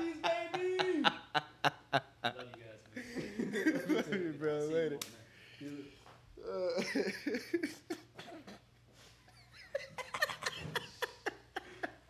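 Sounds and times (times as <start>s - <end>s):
men laughing: 0.0s - 4.4s, 6.7s - 8.6s, 9.3s - 12.0s.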